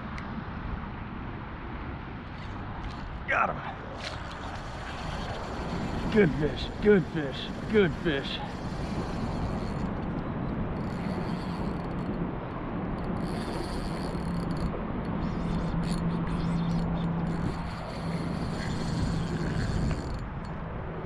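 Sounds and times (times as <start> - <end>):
water noise: 2.0 - 21.0
wind on microphone: 2.2 - 21.0.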